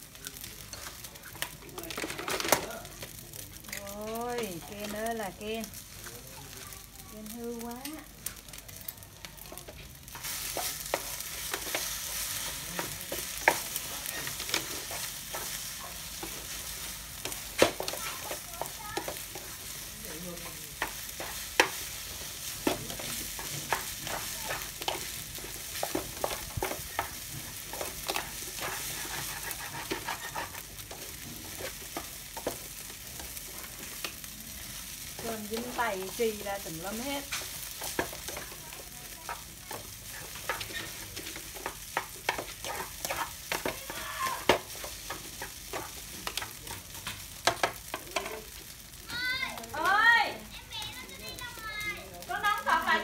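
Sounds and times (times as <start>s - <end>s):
food sizzling in a pan: 0.0s - 53.0s
spatula scraping a pan: 10.1s - 48.6s.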